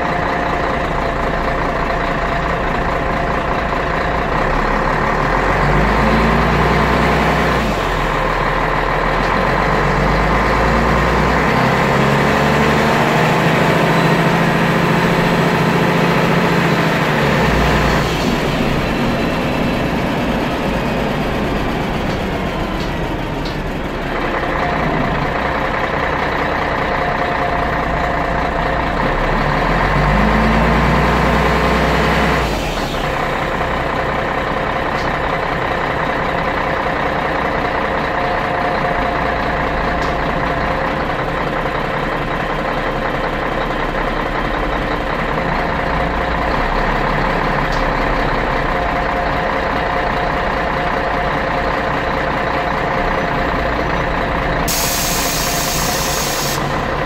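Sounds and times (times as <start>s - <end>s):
diesel bus engine running: 0.0s - 57.0s
sharp hiss: 54.7s - 56.7s.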